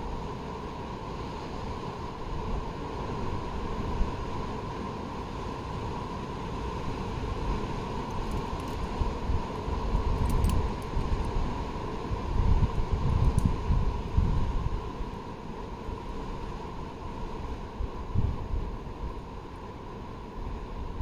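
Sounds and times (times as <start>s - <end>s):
wind buffeting microphone: 8.2s - 14.9s.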